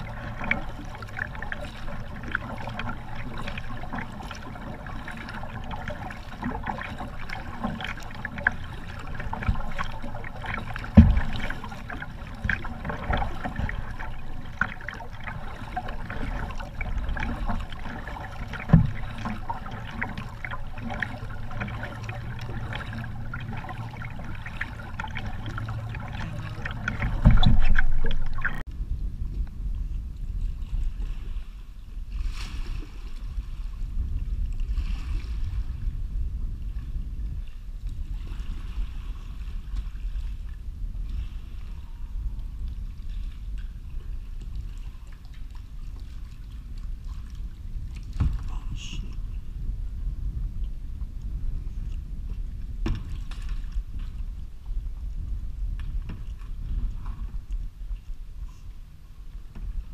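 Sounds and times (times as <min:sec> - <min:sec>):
paddle splashing and dripping: 0:00.0 - 0:28.7, 0:38.2 - 0:49.6, 0:51.2 - 0:55.0
low rumble: 0:00.0 - 0:59.9
dull thumps on kayak: 0:09.3 - 0:13.8, 0:18.5 - 0:21.0, 0:24.9 - 0:28.6, 0:48.1 - 0:48.5, 0:52.8 - 0:53.5.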